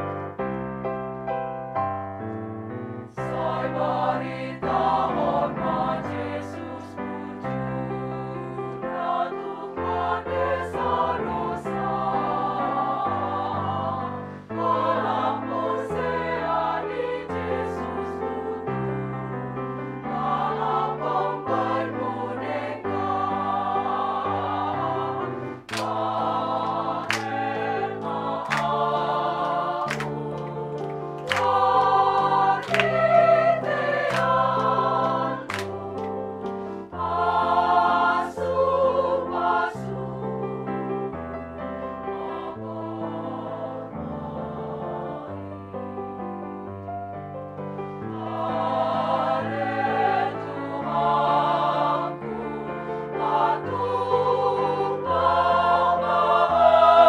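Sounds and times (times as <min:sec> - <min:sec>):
women's choir singing: 0:03.2 - 0:41.0, 0:41.8 - 0:46.3, 0:47.8 - 0:57.0
hand claps: 0:25.7 - 0:36.6.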